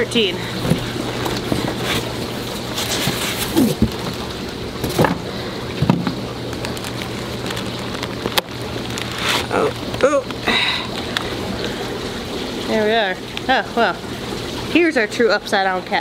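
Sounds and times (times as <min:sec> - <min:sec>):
cardboard box being handled: 0:00.6 - 0:04.2
styrofoam squeaks: 0:01.7 - 0:04.0.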